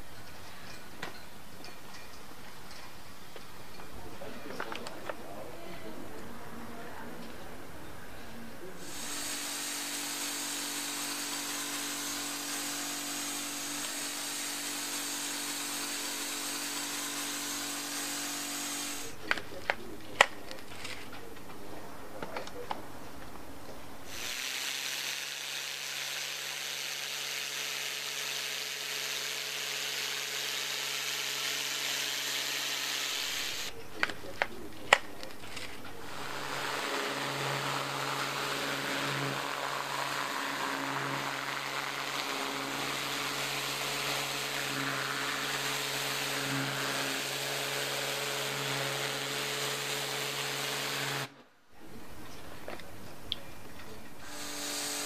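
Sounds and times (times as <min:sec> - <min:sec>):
high-pressure water spray hiss: 0:08.8 - 0:19.1, 0:24.1 - 0:33.7, 0:54.2 - 0:55.0
pressure washer pump humming: 0:08.8 - 0:20.5, 0:24.1 - 0:35.2, 0:36.0 - 0:51.3, 0:54.2 - 0:55.0.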